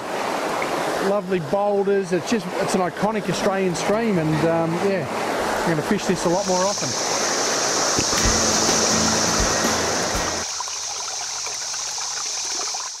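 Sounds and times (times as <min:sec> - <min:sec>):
river rushing over rocks: 0:07.0 - 0:10.5
low thumps: 0:08.0 - 0:10.4
low steady tones: 0:08.1 - 0:10.4.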